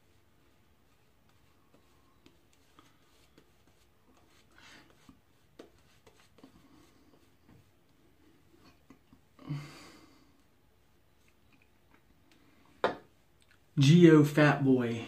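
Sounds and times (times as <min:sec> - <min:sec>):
shaving brush swishing on skin: 0:00.0 - 0:08.6.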